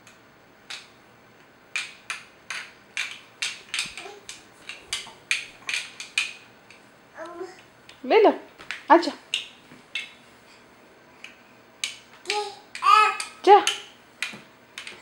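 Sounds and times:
plastic toys clacking together: 0:01.7 - 0:06.4, 0:11.8 - 0:15.0.

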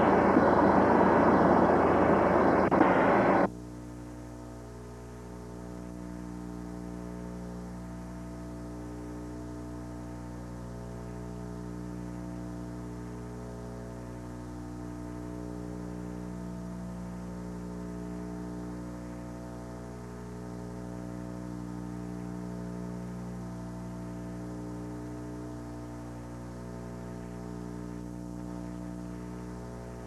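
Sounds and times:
steady drone of even tones: 0:00.0 - 0:03.5.

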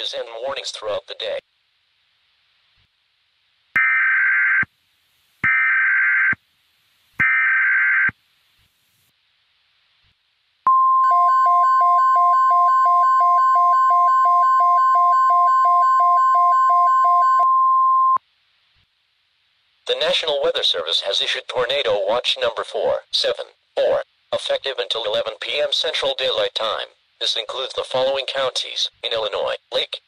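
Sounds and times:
long steady alarm tone: 0:10.7 - 0:18.2.

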